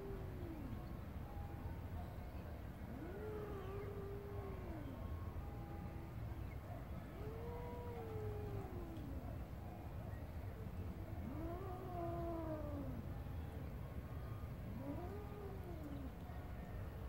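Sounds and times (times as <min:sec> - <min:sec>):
cat yowling: 0:11.2 - 0:13.1, 0:14.7 - 0:16.1.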